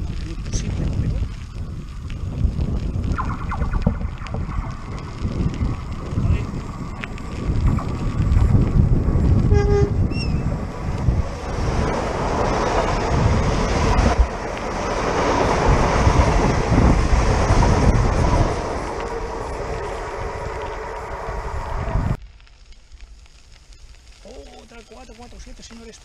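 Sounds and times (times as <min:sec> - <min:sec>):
wind buffeting microphone: 0:00.0 - 0:22.2
electric train rushing past: 0:07.5 - 0:22.2
train horn toot: 0:09.4 - 0:10.0.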